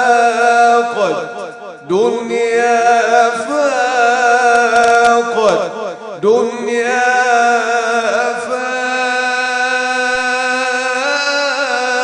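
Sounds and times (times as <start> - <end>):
man singing into microphone: 0.0 - 12.0.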